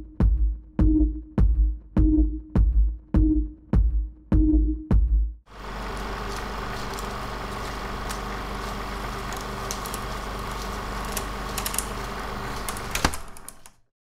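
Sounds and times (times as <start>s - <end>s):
mechanical running hum: 5.5s - 13.9s
crackles and ticks: 5.6s - 13.7s.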